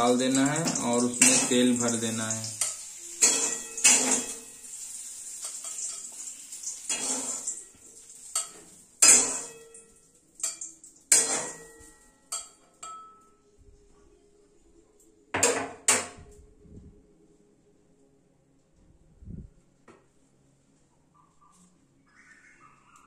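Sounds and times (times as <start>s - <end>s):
spatula clanking on metal pan: 0.6s - 1.9s, 2.5s - 4.6s, 6.9s - 7.6s, 8.3s - 9.8s, 10.4s - 13.2s.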